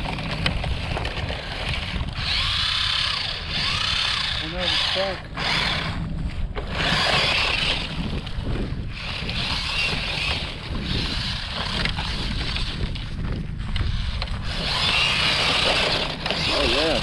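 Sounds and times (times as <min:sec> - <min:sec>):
rc truck motor whining: 0:00.0 - 0:17.0
wind rumble on microphone: 0:00.0 - 0:17.0.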